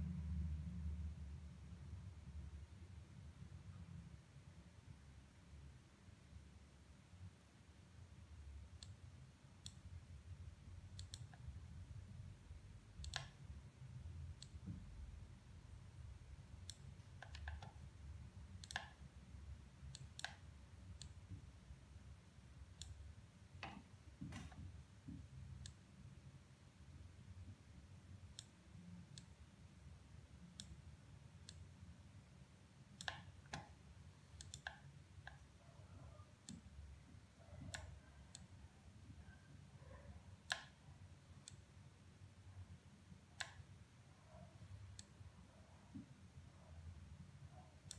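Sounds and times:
low room rumble: 0.0s - 47.9s
computer mouse clicks: 8.7s - 9.0s, 9.6s - 9.9s, 10.9s - 11.6s, 12.9s - 13.5s, 14.3s - 14.8s, 16.6s - 17.9s, 18.5s - 19.1s, 19.8s - 21.4s, 22.7s - 23.0s, 23.6s - 25.8s, 28.3s - 29.4s, 30.5s - 30.8s, 31.4s - 31.8s, 33.0s - 36.7s, 37.4s - 38.6s, 39.2s - 40.8s, 41.4s - 41.7s, 43.4s - 43.8s, 44.9s - 45.2s.

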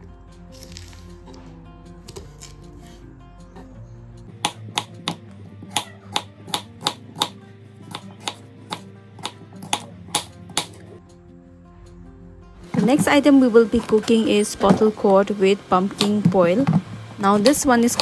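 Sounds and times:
soft background music: 0.0s - 18.0s
knife chopping on wooden board: 4.4s - 10.8s.

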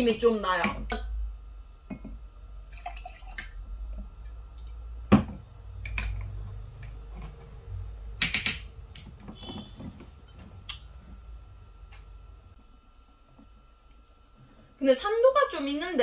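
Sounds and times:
bottle knocking on wooden table: 5.1s - 5.4s.

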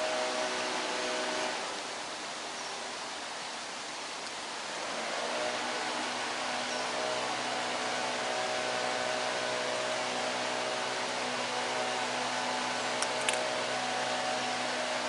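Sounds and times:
steady hiss: 0.0s - 15.0s
short clicks: 13.0s - 13.5s.

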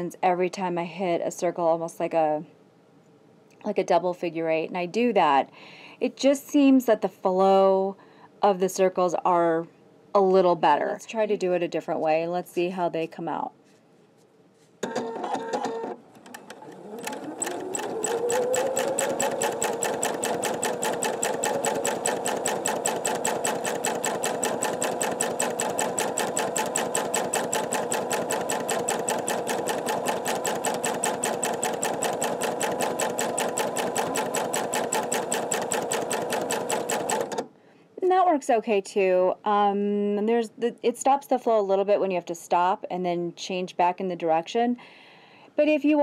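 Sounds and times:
sewing machine stitching: 14.8s - 37.5s.

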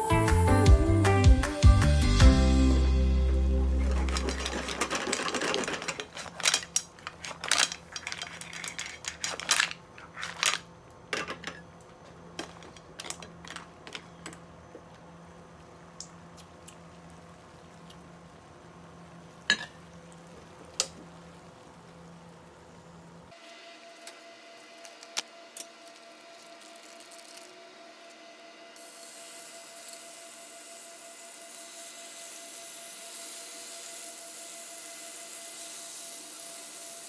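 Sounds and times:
background music: 0.0s - 4.4s
mussel shells clattering in pan: 3.8s - 11.6s
faint steady hum: 5.8s - 23.4s.

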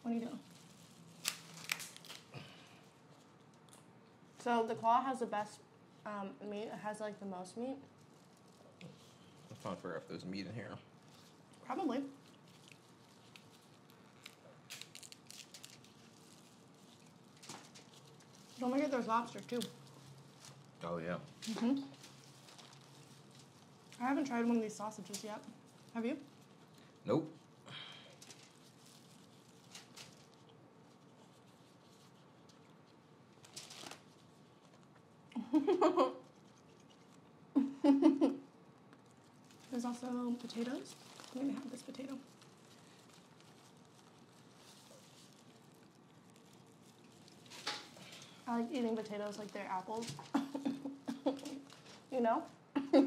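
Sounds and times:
crinkling rustle: 0.0s - 4.8s, 7.3s - 35.3s, 38.6s - 52.6s
crab shell cracking by hand: 1.2s - 2.3s, 12.4s - 16.2s
eating with hands: 10.9s - 18.7s, 19.3s - 24.1s, 36.2s - 37.6s, 38.6s - 52.1s.

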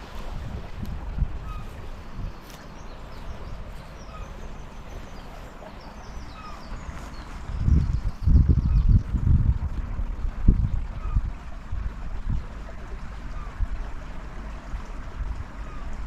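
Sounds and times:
wind rumble on microphone: 0.0s - 16.0s
small birds chirping: 1.4s - 9.1s.

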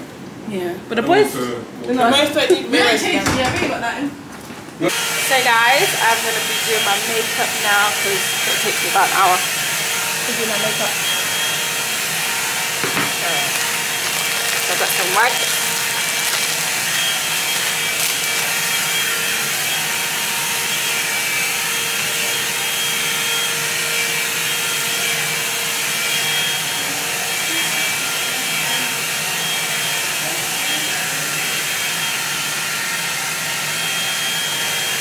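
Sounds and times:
blower hissing with thin whine: 4.9s - 23.7s.

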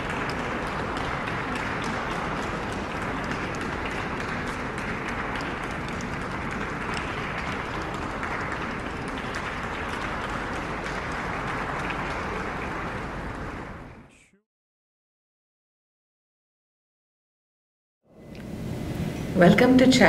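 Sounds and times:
audience applauding: 0.0s - 14.1s.

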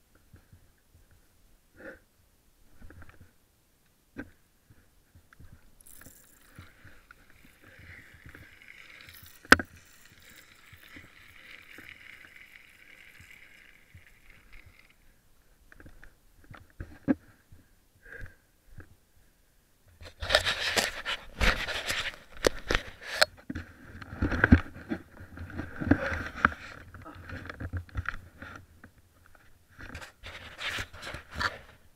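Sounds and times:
zipwire pulley whirring: 5.8s - 15.1s.

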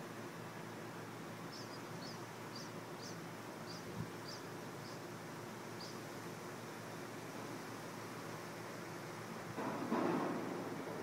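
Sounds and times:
wind hiss: 0.0s - 11.0s
small bird chirping: 1.5s - 5.0s, 5.8s - 6.0s.

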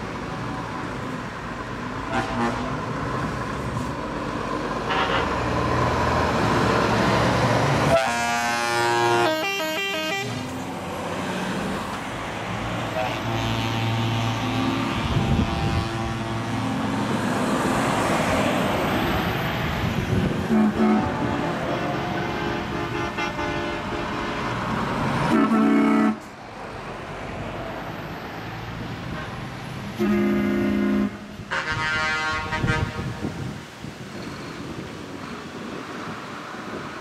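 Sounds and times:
heavy trucks driving past: 0.0s - 37.0s
truck air horns: 2.0s - 2.9s, 4.8s - 5.5s, 7.9s - 10.6s, 12.9s - 16.6s, 20.4s - 24.6s, 25.2s - 26.4s, 30.0s - 33.4s.

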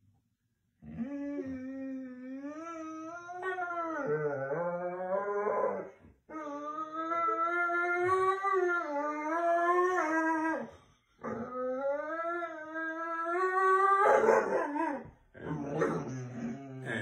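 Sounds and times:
dog howling: 0.9s - 17.0s.

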